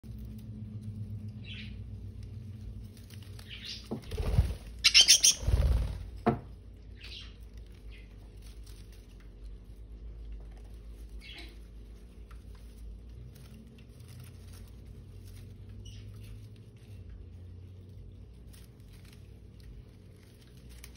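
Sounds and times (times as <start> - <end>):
rustling leaves and thuds: 2.6 - 6.4
budgerigar chirping: 4.8 - 5.6.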